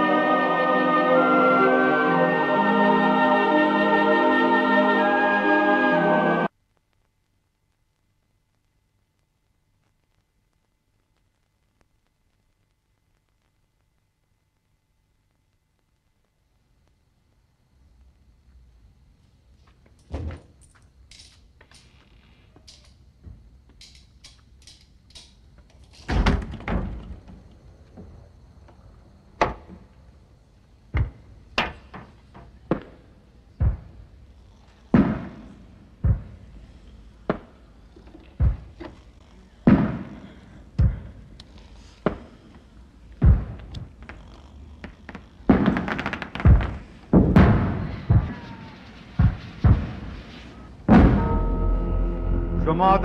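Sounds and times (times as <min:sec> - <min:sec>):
dull thuds: 0:33.6 - 0:34.0, 0:34.9 - 0:36.4, 0:38.4 - 0:39.0, 0:40.8 - 0:41.2, 0:43.2 - 0:44.1, 0:44.8 - 0:51.7.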